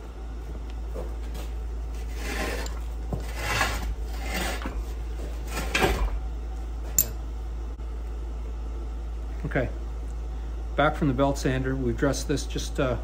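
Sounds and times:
steady low hum: 0.0 - 13.0
metal scraping on anvil: 2.1 - 4.8.

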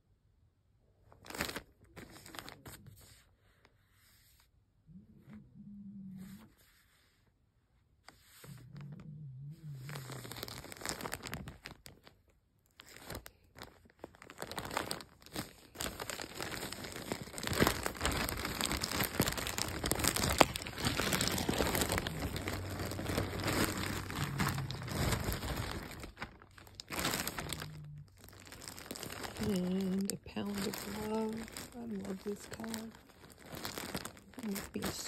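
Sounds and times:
plastic bag crinkling: 1.1 - 3.0, 9.8 - 35.0.

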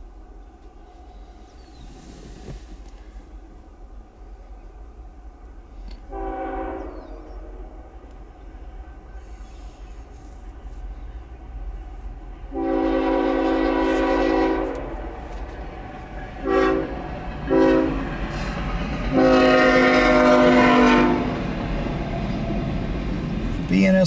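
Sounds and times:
train rumbling: 0.0 - 24.0
locomotive air horn blasts: 6.0 - 7.8, 12.5 - 15.3, 16.4 - 18.0, 19.1 - 21.4.

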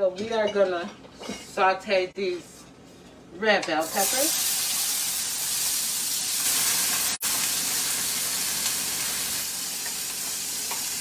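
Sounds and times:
peppers sizzling in a skillet: 3.8 - 11.0.

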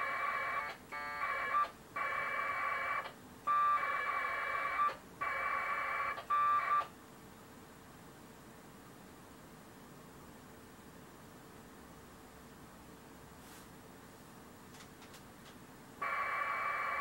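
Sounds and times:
warbling modem data tones: 16.0 - 17.0.

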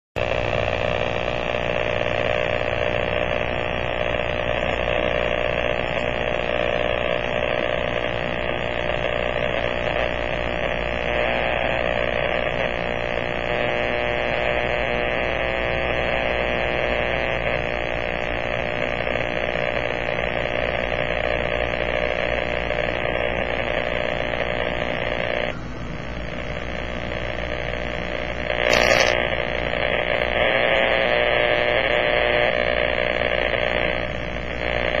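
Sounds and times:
harsh radio interference buzz: 0.2 - 35.0
short loud crackle: 28.6 - 29.5.

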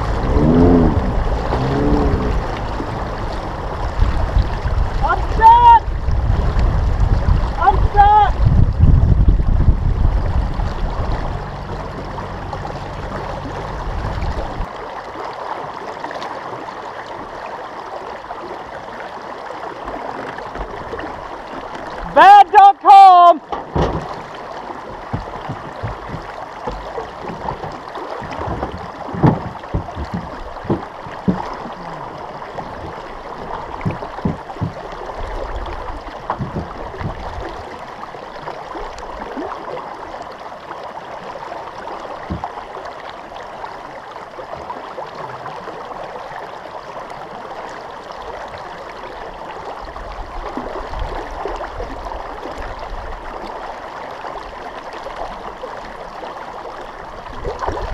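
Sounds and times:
river water rushing and splashing: 0.0 - 57.9
knocks against truck: 23.5 - 24.3, 28.4 - 31.5, 33.8 - 34.8.

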